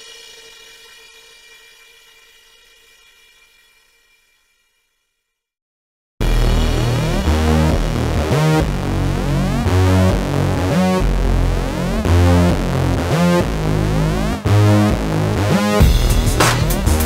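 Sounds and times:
synthesizer music: 6.2 - 17.0.

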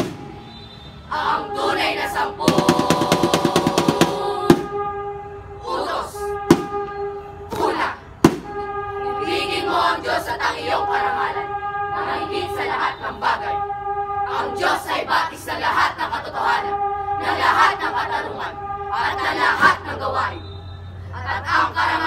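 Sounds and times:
held sung tone: 0.0 - 22.0
children chanting in unison: 1.1 - 4.7, 5.6 - 6.4, 7.5 - 8.0, 9.1 - 13.6, 14.3 - 20.4, 21.1 - 22.0.

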